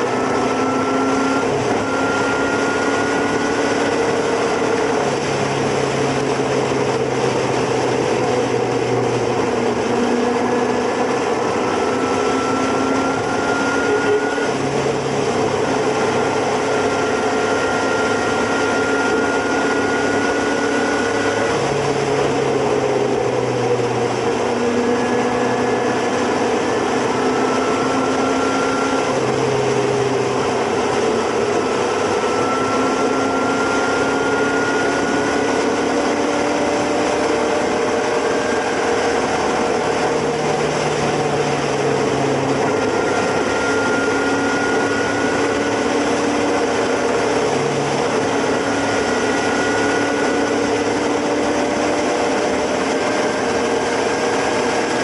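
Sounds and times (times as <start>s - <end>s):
motorcycle engine running: 0.0s - 55.0s
wind and road noise: 0.0s - 55.0s.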